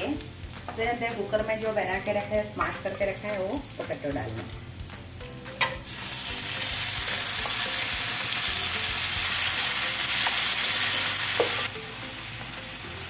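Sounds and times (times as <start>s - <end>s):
oil sizzling: 0.0s - 13.0s.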